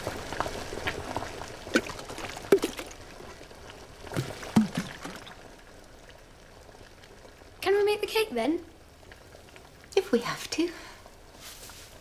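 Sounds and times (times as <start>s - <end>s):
water bubbling: 0.0s - 7.5s.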